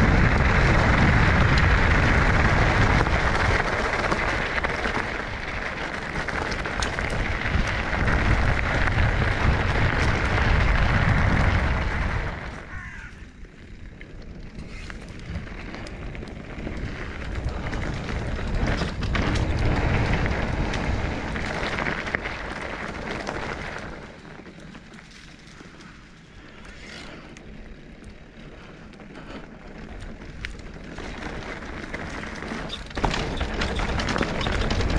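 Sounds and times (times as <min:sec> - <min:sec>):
wind buffeting microphone: 0:00.0 - 0:24.2.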